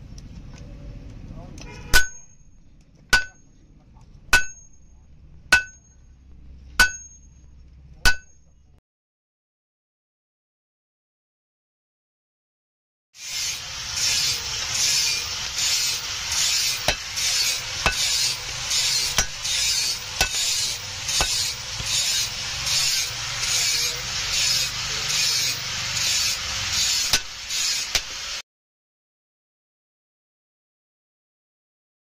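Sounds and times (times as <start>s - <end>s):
rasping strokes on steel blade: 5.5s - 6.0s, 6.8s - 7.5s, 13.2s - 28.4s.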